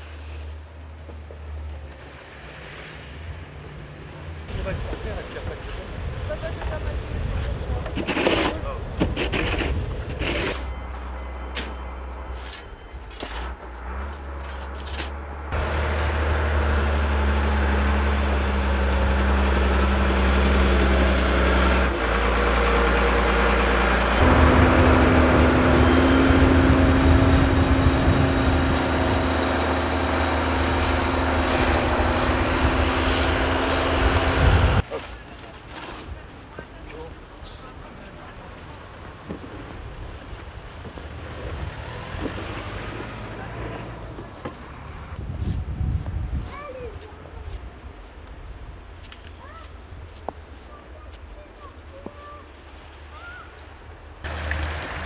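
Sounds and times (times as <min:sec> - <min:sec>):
snow shovels scraping: 0:07.4 - 0:15.2
diesel engine running loudly: 0:15.3 - 0:34.8.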